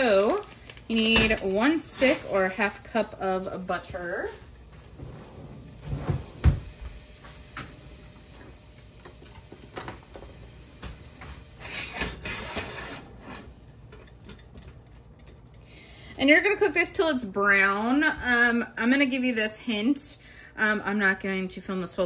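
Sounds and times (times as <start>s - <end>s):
whisk clattering against saucepan: 12.0s - 16.9s.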